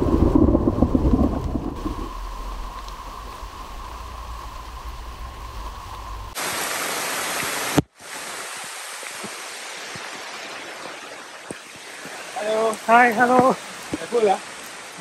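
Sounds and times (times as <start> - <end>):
faint steady hum: 0.0 - 6.4
low rumble: 0.0 - 6.4
heavy rain on foliage: 0.0 - 15.0
water drips: 0.0 - 15.0.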